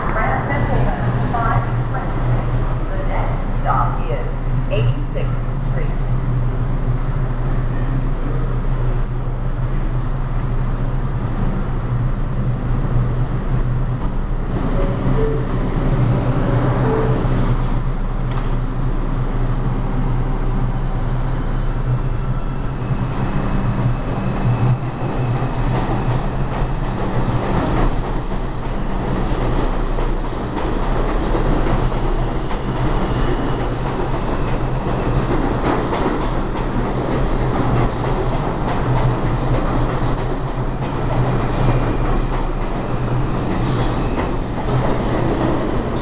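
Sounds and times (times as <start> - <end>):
subway train rumble and hum: 0.0 - 46.0.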